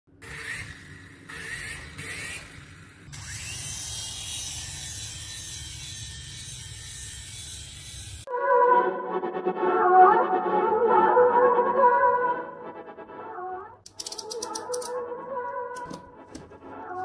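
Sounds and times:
toy helicopter rotors whirring: 0.2s - 8.3s, 13.9s - 15.0s.

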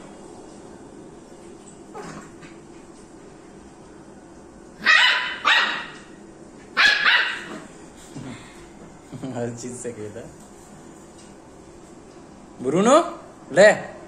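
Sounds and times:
puppy barking high-pitched: 4.8s - 6.1s, 6.8s - 7.6s.

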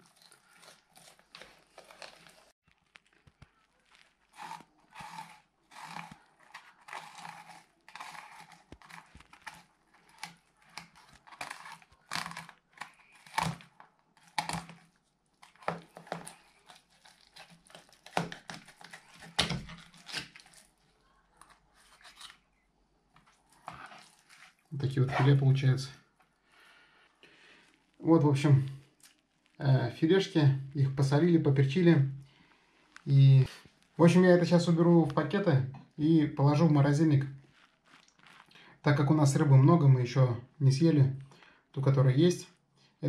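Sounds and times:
knife scraping over fish bone: 4.4s - 20.7s, 23.6s - 24.6s.

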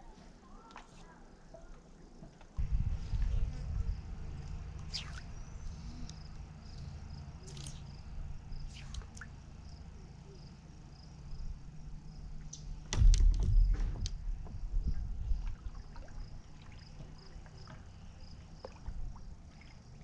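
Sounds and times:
steady low rumble: 2.6s - 16.7s
fly line swishing through air: 4.6s - 6.2s, 7.4s - 8.0s, 8.6s - 9.3s
knocks and thumps on paddleboard: 13.0s - 15.6s.

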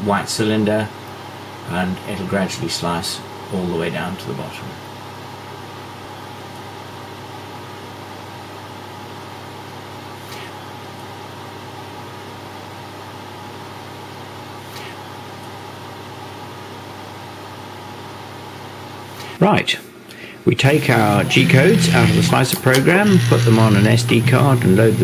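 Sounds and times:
room noise hum and hiss: 0.0s - 25.0s
faint brief high sounds: 20.8s - 24.2s.

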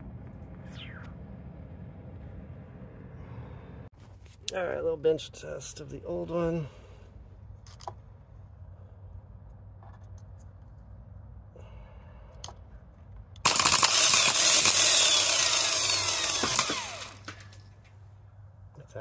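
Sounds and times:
starter motor whirring: 13.5s - 17.5s.

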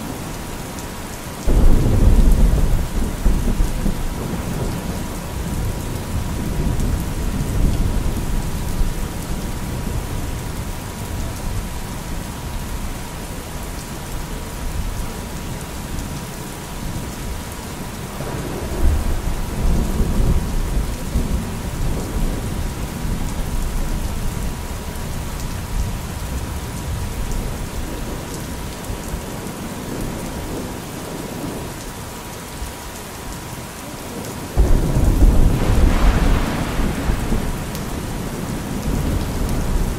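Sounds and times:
rain falling: 0.0s - 39.9s
rolling thunder: 1.5s - 11.6s, 18.2s - 24.2s, 34.6s - 39.9s.

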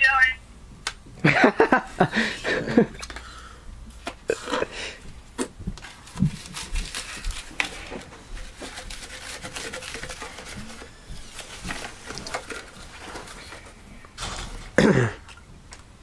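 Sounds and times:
plastic rustling: 5.8s - 15.4s.

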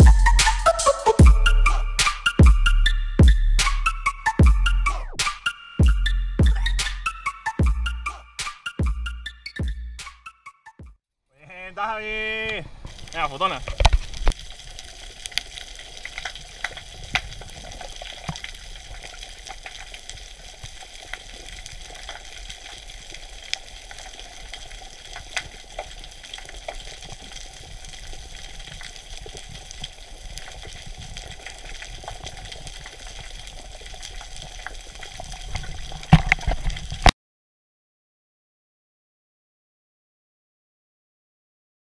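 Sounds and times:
crackling clicks: 12.4s - 37.2s.

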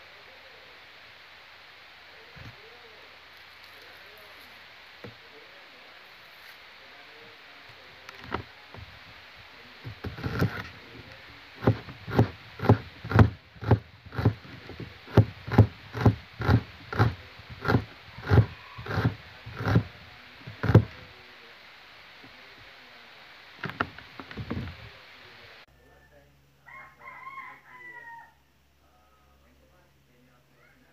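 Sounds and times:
knife slicing onion on board: 9.9s - 10.8s, 11.6s - 21.0s.

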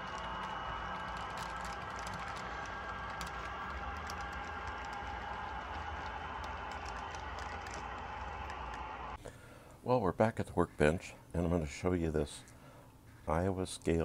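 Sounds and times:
wheels clicking over rail joints: 0.0s - 8.8s
model train cars rumbling: 0.0s - 9.2s.

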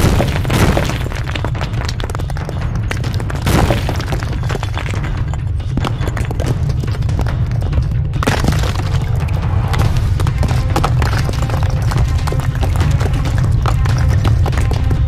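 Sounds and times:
sharp crashes: 0.0s - 1.9s, 3.2s - 6.3s
dramatic music: 0.0s - 15.0s
rumble of collapsing stone: 0.0s - 15.0s.

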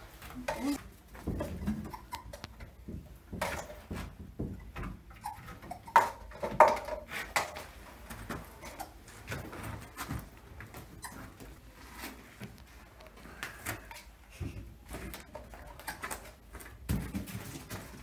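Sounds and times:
lemurs scampering on wood: 0.0s - 18.0s.

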